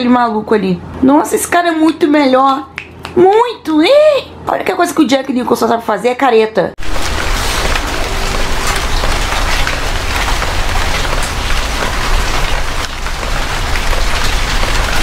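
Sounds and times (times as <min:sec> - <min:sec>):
heavy rain hissing: 0:06.8 - 0:15.0
raindrops striking leaves: 0:06.8 - 0:15.0.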